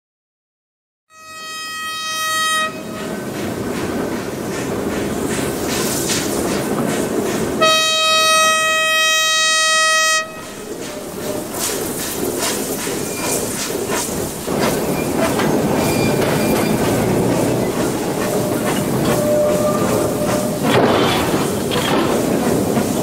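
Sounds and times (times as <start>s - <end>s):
locomotive exhaust beats: 2.6s - 23.0s
hissing steam: 3.0s - 7.8s, 10.4s - 23.0s
steam whistle blast: 7.6s - 10.6s.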